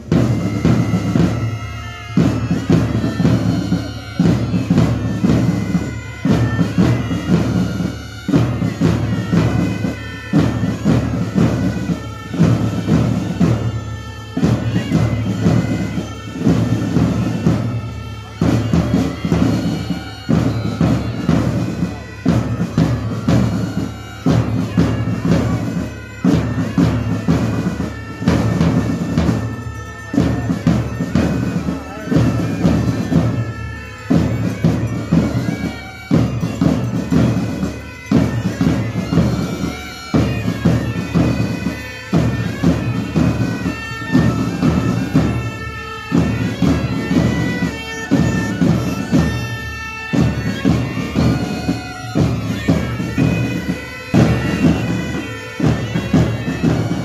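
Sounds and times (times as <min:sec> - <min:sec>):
bagpipes playing melody: 0:00.0 - 0:57.0.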